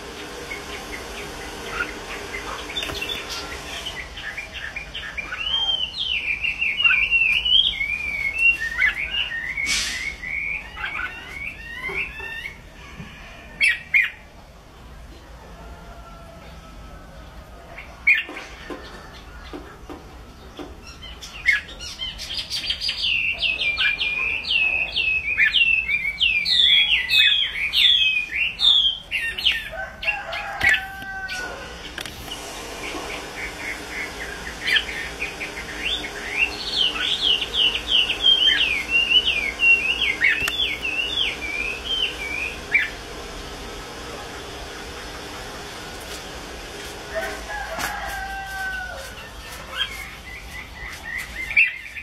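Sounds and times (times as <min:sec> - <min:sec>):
bird singing whistled notes: 0:02.8 - 0:12.6, 0:20.9 - 0:29.5.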